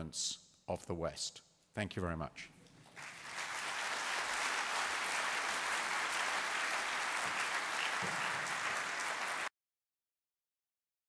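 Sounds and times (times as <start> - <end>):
audience applauding: 2.9 - 9.5.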